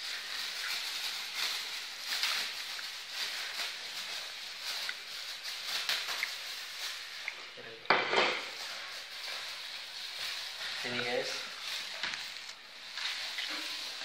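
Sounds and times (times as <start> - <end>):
plastic glove crinkling: 0.0 - 14.0.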